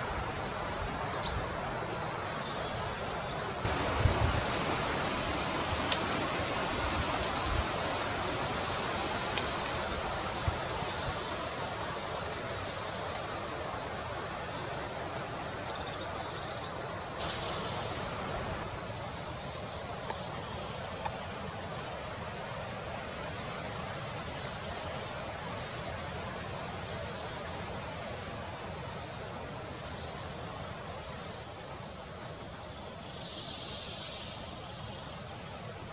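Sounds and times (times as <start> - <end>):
outdoor background hiss: 0.0 - 35.9.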